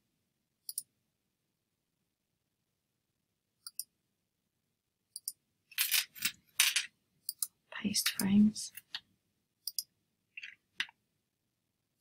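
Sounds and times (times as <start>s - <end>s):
computer mouse clicks: 0.6s - 0.9s, 3.6s - 3.9s, 5.1s - 5.4s, 7.2s - 9.0s, 9.6s - 11.0s.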